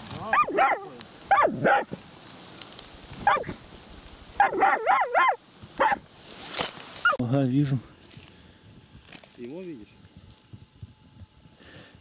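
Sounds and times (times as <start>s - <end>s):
dog barking sharply: 0.3s - 1.9s, 3.2s - 3.5s, 4.4s - 6.0s.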